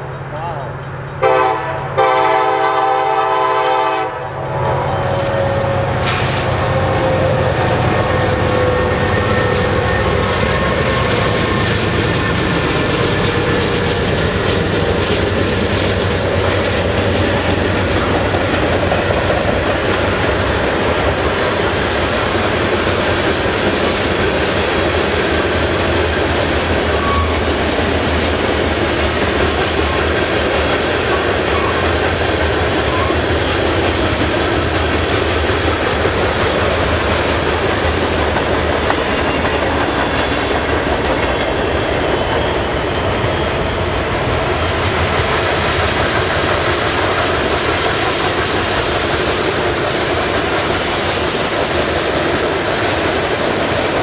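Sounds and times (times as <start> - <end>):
freight train passing: 0.0 - 54.0
locomotive air horn blast: 1.2 - 7.3.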